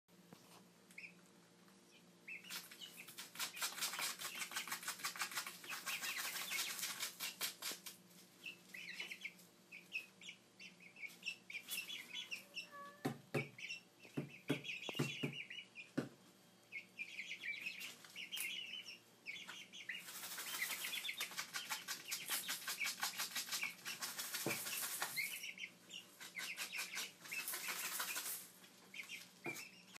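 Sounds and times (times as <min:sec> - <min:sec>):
chicks peeping: 0:00.4 - 0:30.0
knocks: 0:13.0 - 0:15.4.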